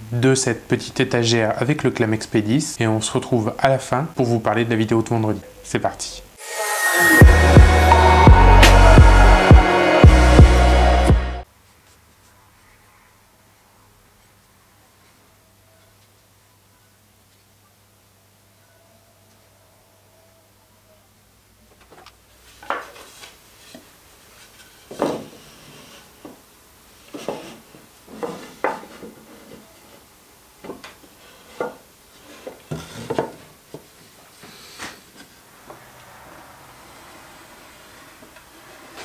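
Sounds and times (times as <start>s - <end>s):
boards rubbing: 27.0s - 30.1s.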